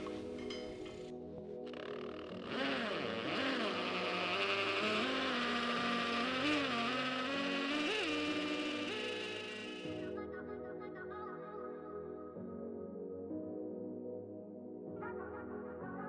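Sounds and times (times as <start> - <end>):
cordless drill under load: 1.7 - 10.1.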